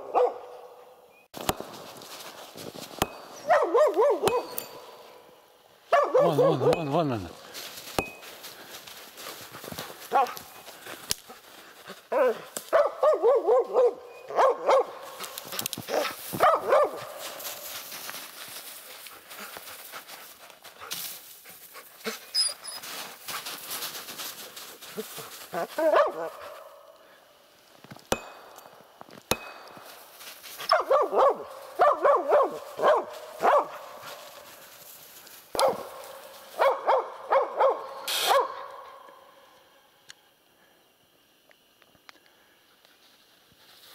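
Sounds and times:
dog barking: 0:00.0 - 0:00.9, 0:03.4 - 0:04.6, 0:05.9 - 0:07.0, 0:10.1 - 0:10.4, 0:12.1 - 0:17.2, 0:25.6 - 0:26.6, 0:30.7 - 0:34.1, 0:35.5 - 0:38.9.

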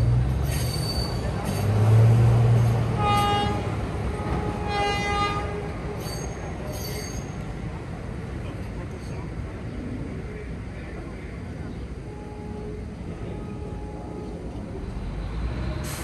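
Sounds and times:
diesel locomotive engine drone: 0:00.0 - 0:16.0
locomotive horn blasts: 0:02.8 - 0:05.7, 0:12.1 - 0:14.4.

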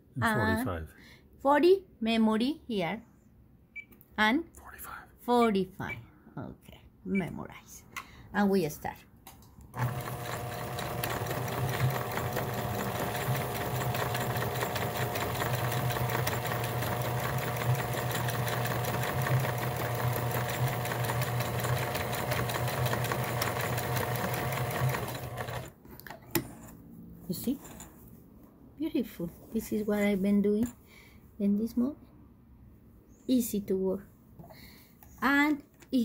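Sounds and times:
sewing machine running: 0:09.8 - 0:25.7.

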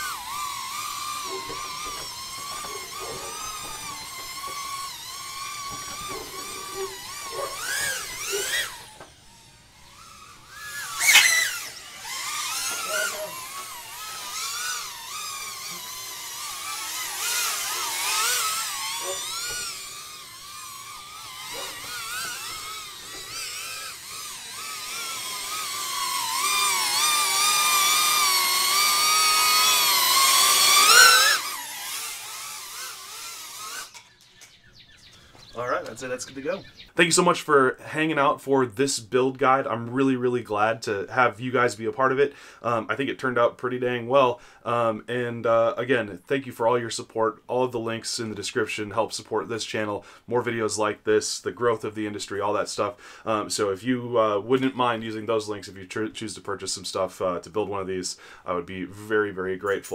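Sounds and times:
drone motors whining: 0:00.0 - 0:37.0.

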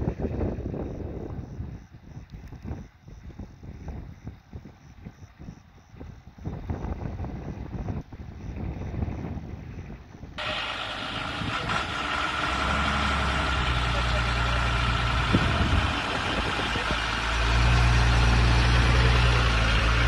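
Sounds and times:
fire truck engine idling: 0:10.4 - 0:20.0.

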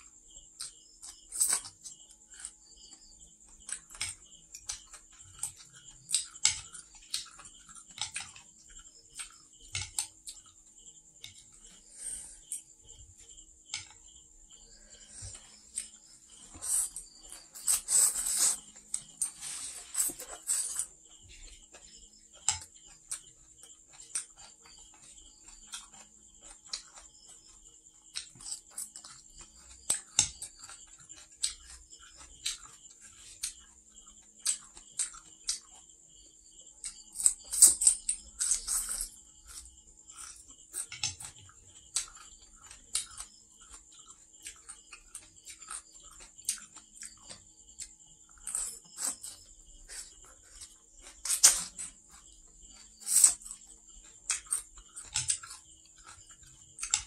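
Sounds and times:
chewing crunches: 0:00.2 - 0:57.0
slurping noodles: 0:16.4 - 0:20.9.

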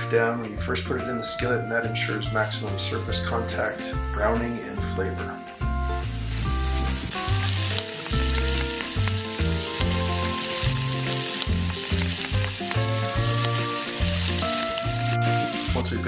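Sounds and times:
background music with bass: 0:00.0 - 0:16.0
steaks sizzling in skillet: 0:05.2 - 0:16.0.

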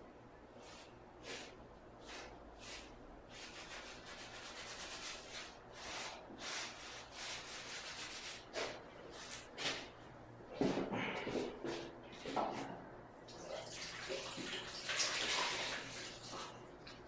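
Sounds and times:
hand scrubbing tile: 0:00.6 - 0:09.4.

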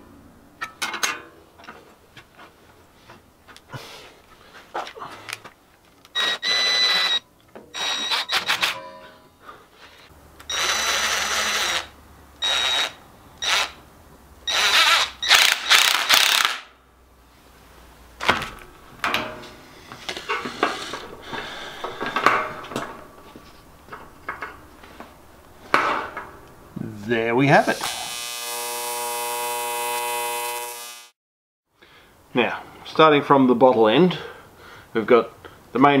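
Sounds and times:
cordless drill whining: 0:06.1 - 0:08.7, 0:10.5 - 0:13.8, 0:14.5 - 0:16.5.

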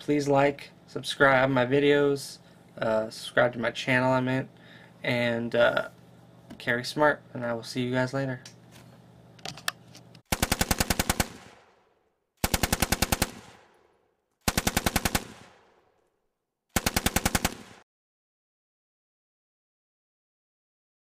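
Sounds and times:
machine-gun fire bursts: 0:10.3 - 0:11.7, 0:12.4 - 0:13.7, 0:14.4 - 0:15.7, 0:16.8 - 0:17.8.

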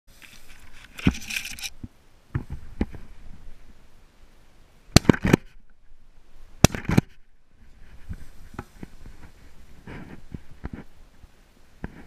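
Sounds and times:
shotgun blasts: 0:04.9 - 0:05.5, 0:06.6 - 0:07.2.

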